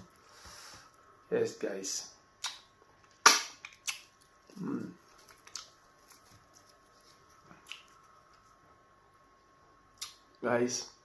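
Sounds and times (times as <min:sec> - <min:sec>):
wet eating clicks and smacks: 0:02.4 - 0:06.4, 0:07.6 - 0:08.4.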